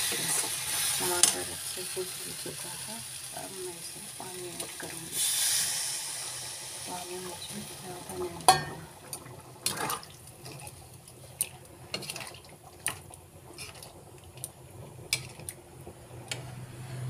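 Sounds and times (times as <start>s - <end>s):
curry bubbles popping: 8.1s - 16.1s.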